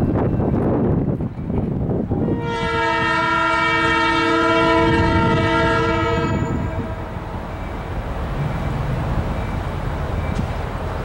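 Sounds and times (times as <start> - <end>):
locomotive air horn blast: 2.2 - 7.3.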